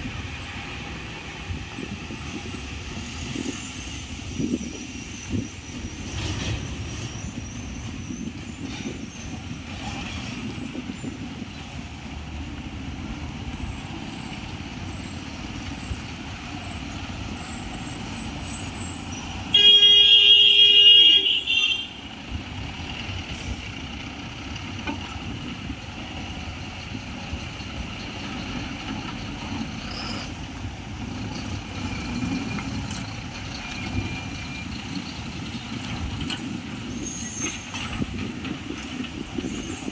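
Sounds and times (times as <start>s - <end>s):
vehicle engines: 0.0s - 39.9s
loud horn blast: 19.5s - 22.0s.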